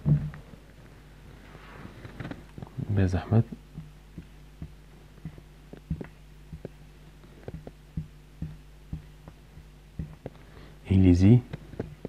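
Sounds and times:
faint steady hum: 0.0 - 12.0
marker pen on whiteboard: 3.7 - 10.4.

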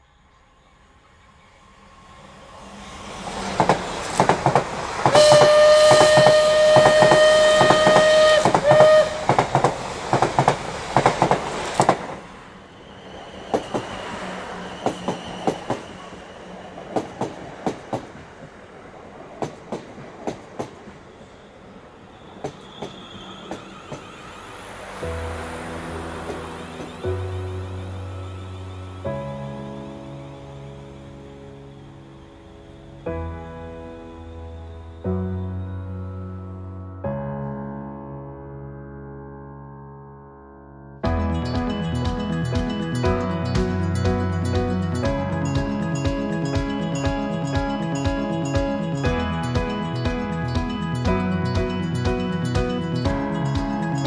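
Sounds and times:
train clickety-clack on rails: 3.0 - 12.4, 13.1 - 21.3, 22.2 - 28.4, 41.1 - 54.0
train horn: 5.0 - 9.8.

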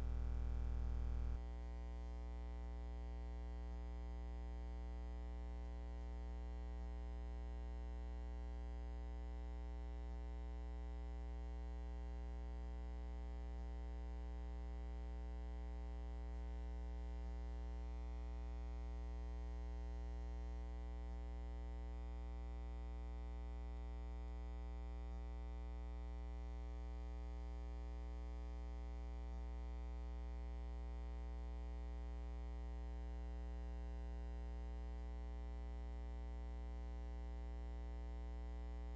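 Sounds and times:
electrical hum: 0.0 - 1.4.

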